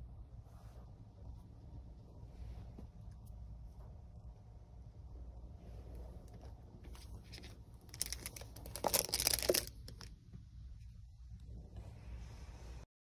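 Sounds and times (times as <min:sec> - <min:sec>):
plastic packaging rustling: 0:07.0 - 0:10.1.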